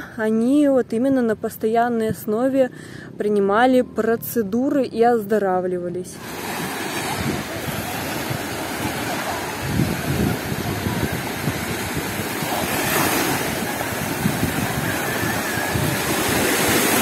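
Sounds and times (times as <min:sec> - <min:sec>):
sea waves breaking on sand: 0:06.2 - 0:17.0
wind buffeting microphone: 0:06.3 - 0:17.0.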